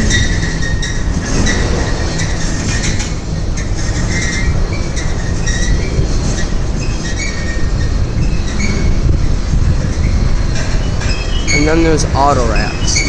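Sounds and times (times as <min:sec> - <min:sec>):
high-pitched wheel squeals: 0:00.0 - 0:13.0
train wheels clacking: 0:00.0 - 0:13.0
train wheels rumbling on rails: 0:00.0 - 0:13.0.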